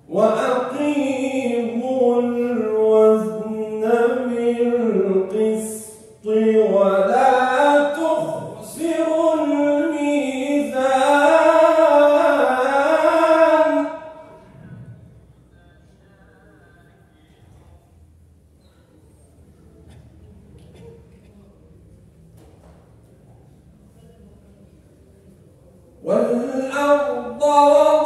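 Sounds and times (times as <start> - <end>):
man chanting melodically: 0.0 - 15.0, 26.0 - 28.0.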